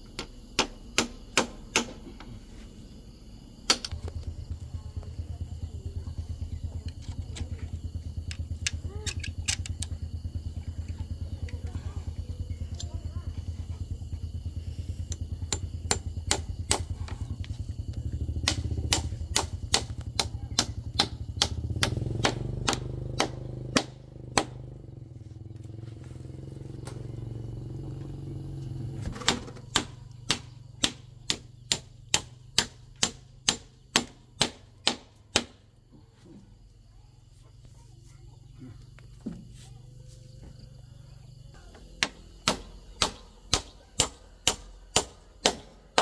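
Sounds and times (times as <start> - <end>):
hammer striking wood: 0.1 - 2.2, 15.5 - 16.9, 18.4 - 24.6, 29.1 - 35.6, 42.0 - 46.0
low engine running: 2.0 - 32.5.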